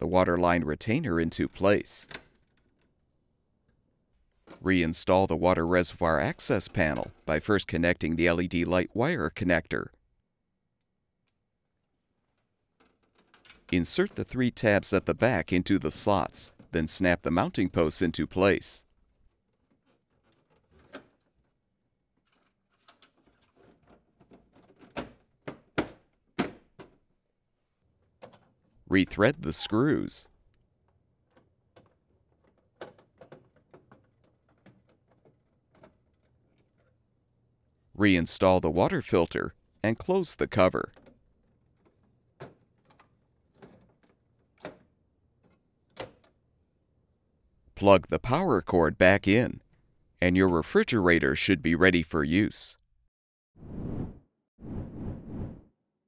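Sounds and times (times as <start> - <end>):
plastic clicks and rattles: 12.3 - 13.8, 19.3 - 21.6, 22.2 - 27.0, 28.0 - 28.8, 30.5 - 37.0, 40.9 - 46.4
plastic knocks and clicks: 31.2 - 36.9.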